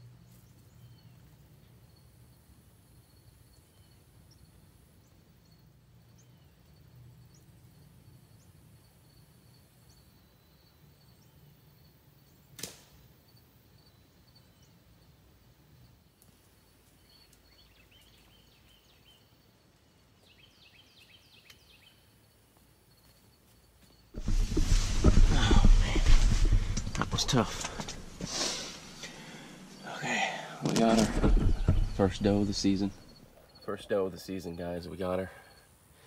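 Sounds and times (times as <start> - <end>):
faint high insect drone: 0.0 - 36.0
sharp snap of a bow shot: 12.5 - 13.1
faint bird chirps: 16.7 - 19.6.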